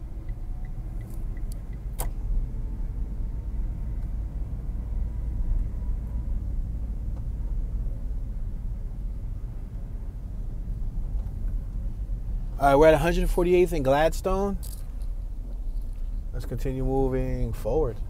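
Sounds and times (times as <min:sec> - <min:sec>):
car engine and tyres rumbling: 0:00.0 - 0:18.0
sharp click: 0:01.0 - 0:02.2.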